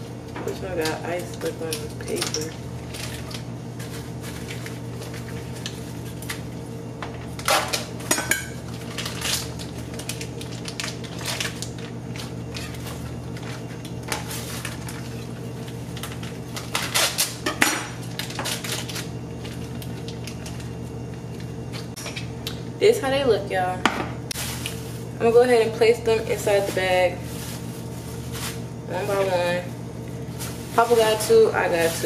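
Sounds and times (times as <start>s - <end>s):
steady low hum: 0.0s - 32.0s
plastic wrapping crinkling: 8.7s - 17.4s, 24.3s - 32.0s.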